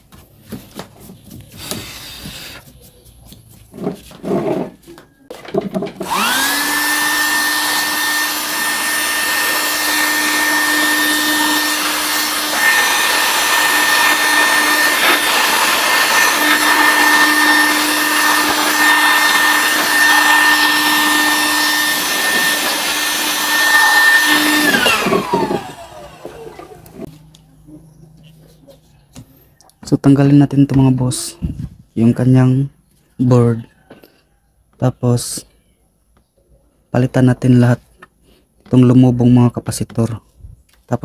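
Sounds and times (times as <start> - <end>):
electric blower motor whining: 5.8 - 27.2.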